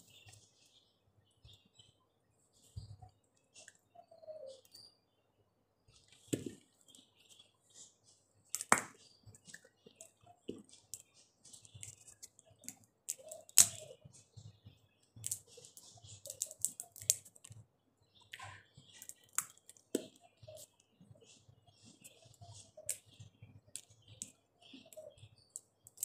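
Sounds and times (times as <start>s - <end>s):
chewing and seed skins cracking: 8.5s - 9.7s, 10.5s - 13.9s, 15.2s - 17.6s, 18.3s - 20.2s, 25.6s - 26.0s.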